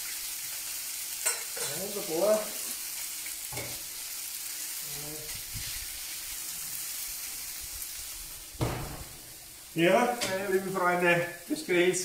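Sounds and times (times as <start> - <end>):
food sizzling on a griddle: 0.0 - 12.0
sharp knock: 8.6 - 9.2.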